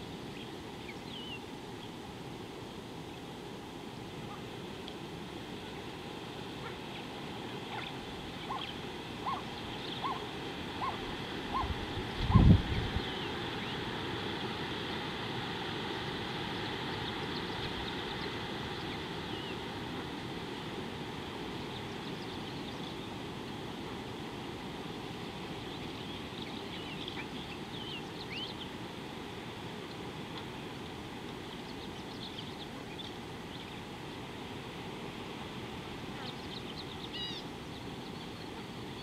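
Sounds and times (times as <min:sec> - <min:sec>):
faint bird chirps: 0:07.7 - 0:11.7, 0:36.2 - 0:39.0.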